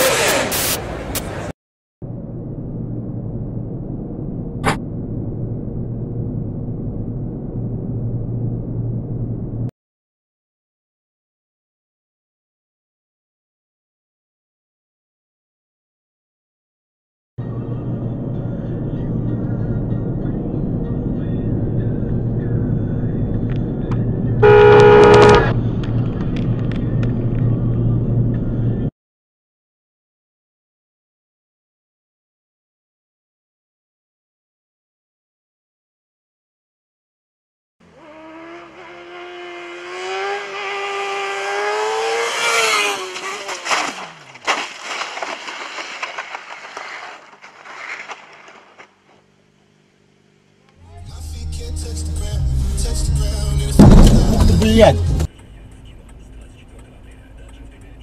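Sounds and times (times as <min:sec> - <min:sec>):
car engine and road noise: 0:00.0 - 0:09.7, 0:17.4 - 0:28.9, 0:37.8 - 0:58.0
car horn blast: 0:24.4 - 0:25.6
motorcycle engine passing at high revs: 0:37.8 - 0:44.4
bike scraping along asphalt: 0:42.4 - 0:49.5
sharp crash: 0:53.8 - 0:54.6.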